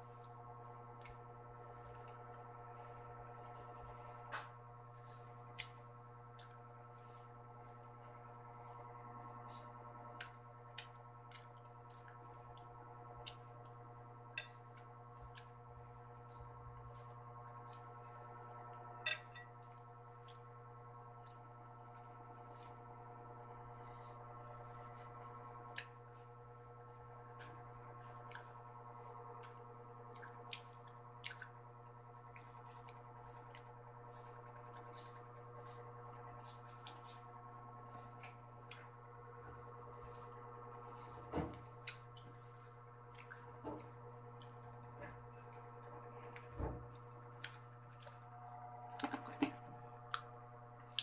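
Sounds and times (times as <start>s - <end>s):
faint steady hum: 0.0s - 51.0s
wet clicks and smacks of eating: 29.4s - 31.5s.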